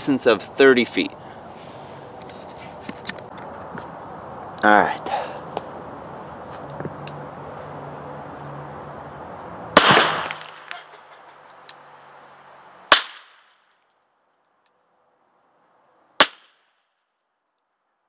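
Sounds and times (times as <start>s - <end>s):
revolver gunshots: 9.8s - 10.8s.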